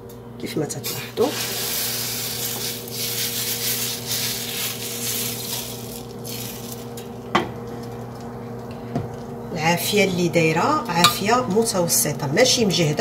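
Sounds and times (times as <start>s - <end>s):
batter hissing in hot pan: 0.9s - 6.9s.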